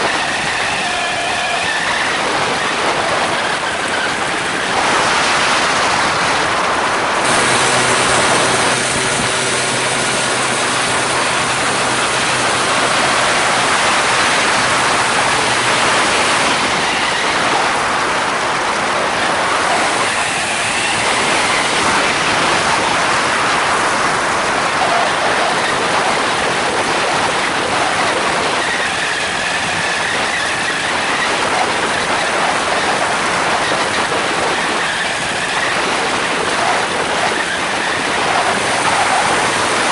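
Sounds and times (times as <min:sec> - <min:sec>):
two-stroke engine and propeller: 0:00.0 - 0:39.9
wind rushing over microphone: 0:00.0 - 0:39.9.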